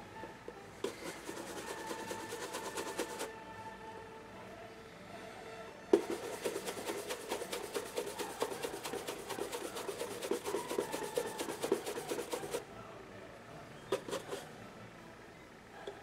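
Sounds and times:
shoe brush scrubbing leather: 0.8 - 3.3, 6.0 - 12.6, 14.0 - 14.4.

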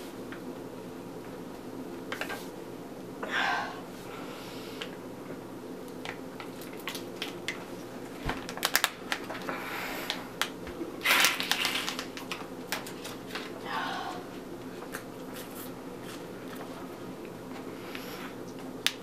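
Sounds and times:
foil drink pouch crinkling: 8.4 - 10.2, 11.0 - 13.5.

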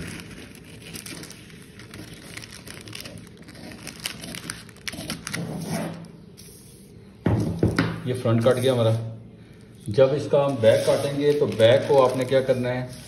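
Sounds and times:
paper rustling: 0.0 - 6.8, 9.8 - 13.0.

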